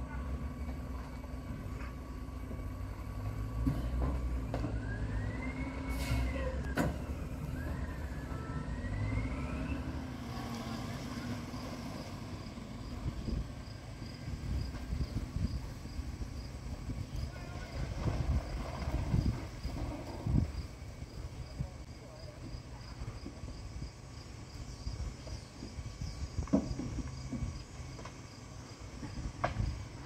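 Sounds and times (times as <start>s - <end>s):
garbage truck engine rumble: 0.0s - 30.0s
hydraulic whine rising and falling: 4.5s - 11.0s.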